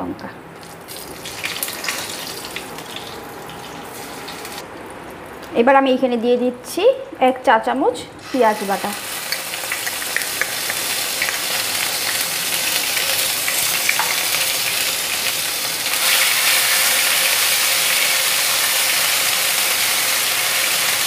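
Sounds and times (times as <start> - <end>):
paste sizzling in hot oil: 8.2 - 21.0.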